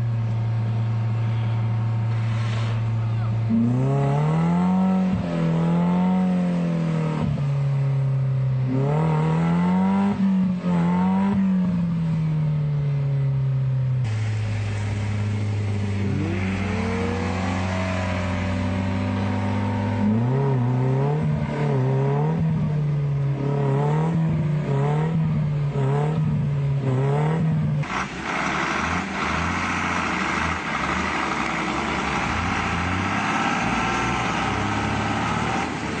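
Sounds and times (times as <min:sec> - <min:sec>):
off-road engines working: 0:00.0 - 0:36.0
engine revving up and down: 0:00.7 - 0:12.4, 0:14.0 - 0:36.0
broad rushing noise: 0:02.0 - 0:03.6, 0:14.0 - 0:20.7.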